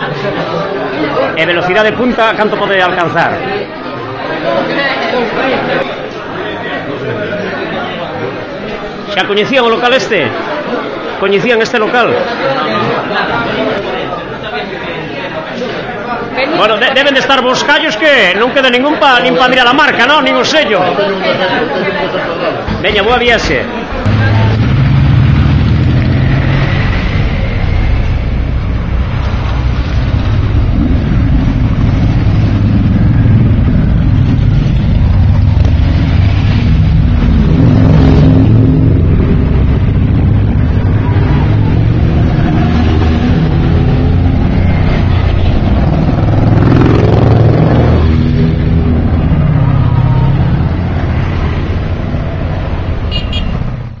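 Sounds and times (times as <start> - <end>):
motorcycles riding past: 24.0 - 54.0.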